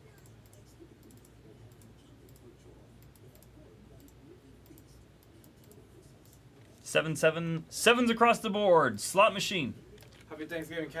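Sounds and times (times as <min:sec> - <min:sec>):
low steady room hum: 0:00.0 - 0:11.0.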